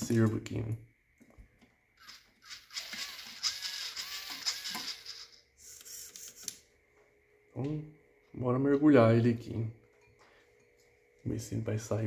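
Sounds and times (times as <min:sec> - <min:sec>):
servo gear whine: 0:02.0 - 0:06.6.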